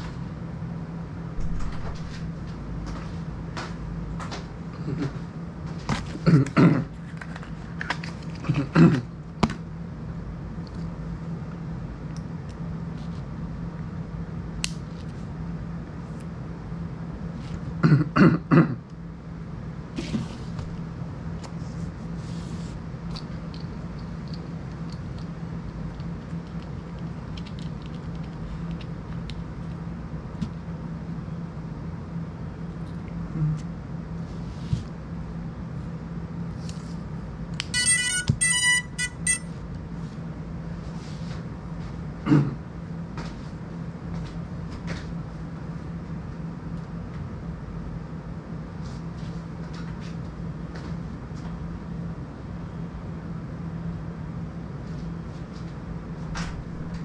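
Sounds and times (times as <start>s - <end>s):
low hum: 0.0s - 6.4s
short vocal sound: 33.3s - 33.7s
high electronic beeps: 37.8s - 39.5s.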